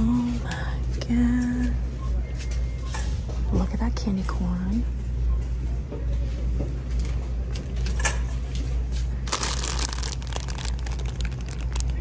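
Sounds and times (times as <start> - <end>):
plastic packaging crinkling: 9.2 - 12.0.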